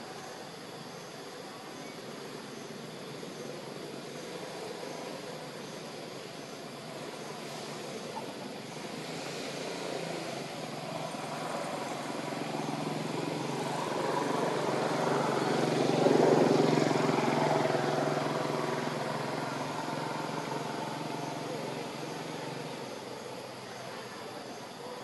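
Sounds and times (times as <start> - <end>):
engine passing by: 6.2 - 25.0.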